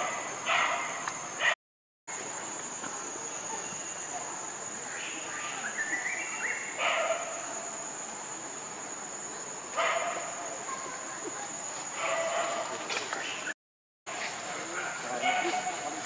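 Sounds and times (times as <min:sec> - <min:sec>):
high-pitched insect drone: 0:02.1 - 0:13.5.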